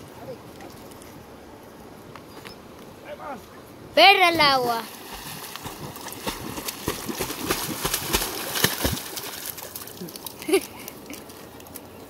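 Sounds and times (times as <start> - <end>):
dog paws splashing water: 4.4 - 12.0.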